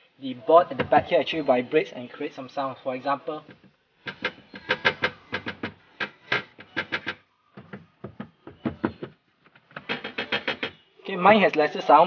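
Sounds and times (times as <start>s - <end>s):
board rattling against car body: 3.4s - 10.8s.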